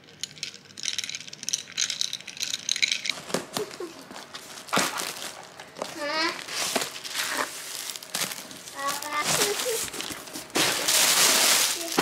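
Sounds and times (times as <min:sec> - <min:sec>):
tape rustling and crinkling: 0:02.8 - 0:12.0.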